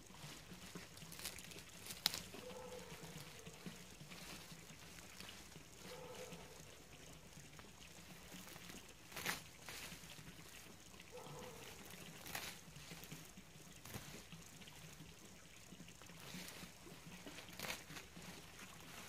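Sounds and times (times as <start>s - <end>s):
dead leaves rustling: 0.0s - 7.3s, 8.0s - 15.0s, 15.9s - 19.0s
plant stalks cracking: 0.8s - 3.7s, 9.1s - 9.9s, 12.2s - 12.6s, 17.5s - 18.0s.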